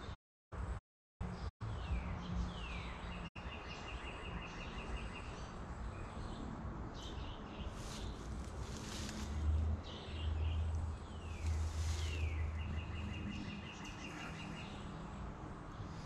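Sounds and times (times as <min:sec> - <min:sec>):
birds chirping: 0:01.2 - 0:16.0.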